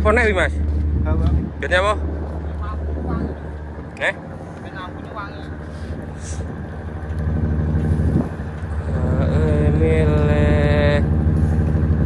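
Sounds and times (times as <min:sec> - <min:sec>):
boat engine humming: 0:00.0 - 0:12.0
wind on microphone: 0:00.8 - 0:04.0, 0:05.6 - 0:12.0.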